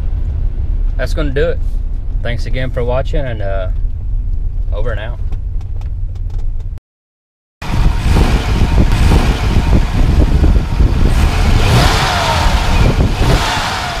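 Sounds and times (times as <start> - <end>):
falling engine whines: 7.6 - 14.0
vehicle engine running loudly: 7.6 - 14.0.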